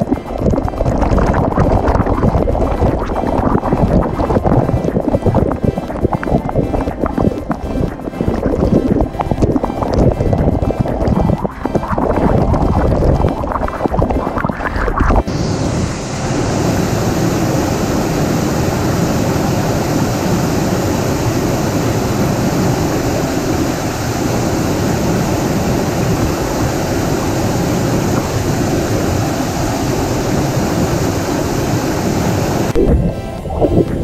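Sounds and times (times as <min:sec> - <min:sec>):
small waterfall rushing: 0:15.3 - 0:32.8.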